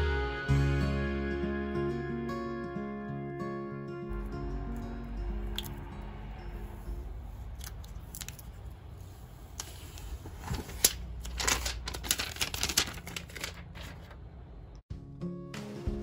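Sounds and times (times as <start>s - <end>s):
plastic film crinkling: 10.3s - 14.3s.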